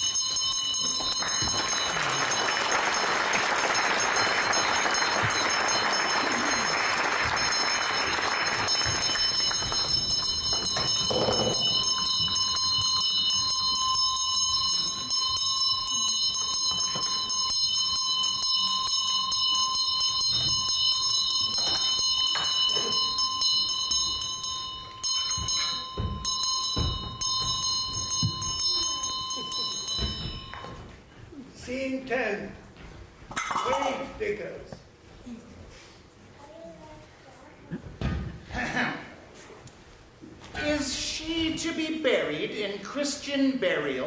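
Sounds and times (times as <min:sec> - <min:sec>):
sustained high ringing tones: 0:00.0 - 0:31.0
soft knocks and thuds: 0:25.4 - 0:28.5.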